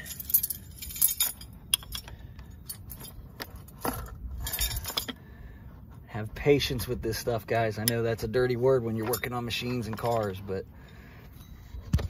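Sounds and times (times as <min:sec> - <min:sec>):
metal wrench clinking and scraping: 0:00.0 - 0:05.2, 0:06.7 - 0:10.6.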